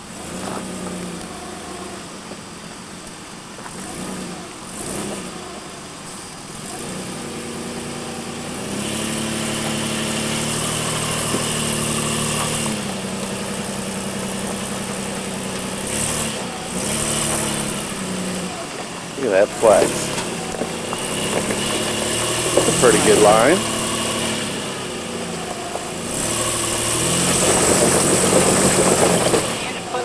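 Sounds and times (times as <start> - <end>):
engine working under load: 0.0 - 30.0.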